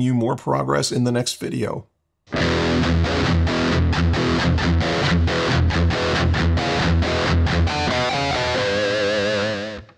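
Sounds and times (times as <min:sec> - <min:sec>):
distorted electric guitar riff: 0:02.3 - 0:09.9.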